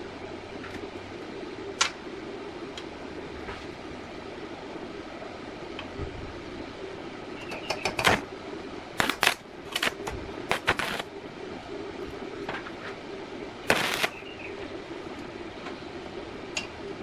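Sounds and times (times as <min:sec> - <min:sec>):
steady low hum: 0:00.0 - 0:17.0
welding arc bursts: 0:09.0 - 0:11.1, 0:13.6 - 0:14.3.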